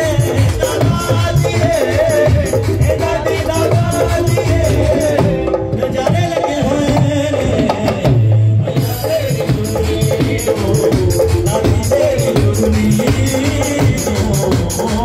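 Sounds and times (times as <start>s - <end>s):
hand drum fast rhythm: 0.0s - 15.0s
electronic keyboard melody: 9.3s - 15.0s.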